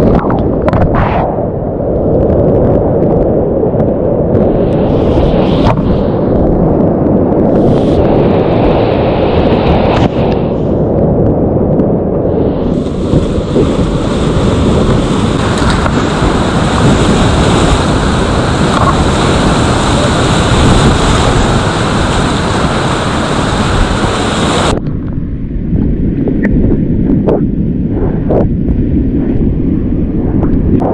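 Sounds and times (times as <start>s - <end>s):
high hiss: 12.4s - 24.8s
whitewater rapids rushing: 12.7s - 24.8s.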